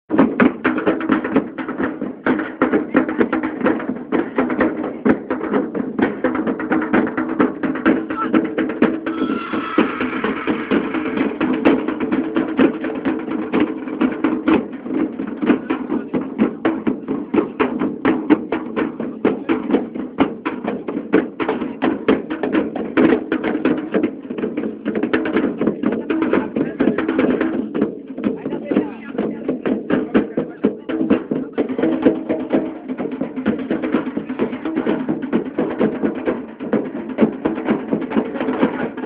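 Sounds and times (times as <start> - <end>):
fast percussion beat: 0.1 - 39.0
crowd voices: 7.9 - 12.1.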